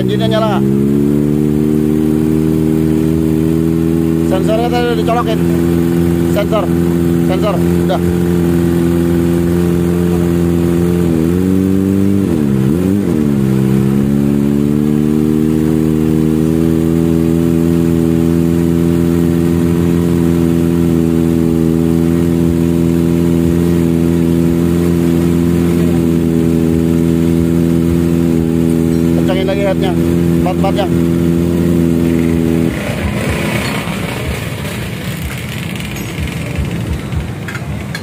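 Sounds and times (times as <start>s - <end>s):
motorcycle engine idling: 2.1s - 11.4s, 19.3s - 38.0s.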